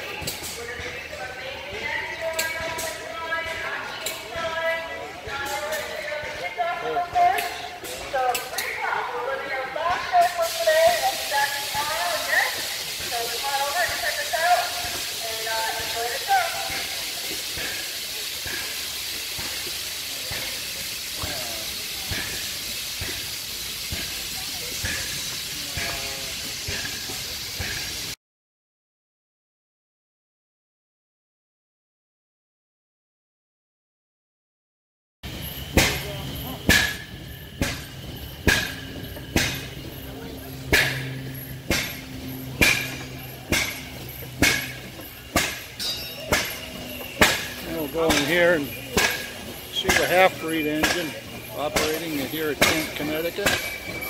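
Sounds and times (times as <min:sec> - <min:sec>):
faint voices: 0:00.0 - 0:28.2, 0:35.6 - 0:54.0
steady hiss: 0:10.2 - 0:28.2
slow-running engine knocking: 0:35.4 - 0:54.0.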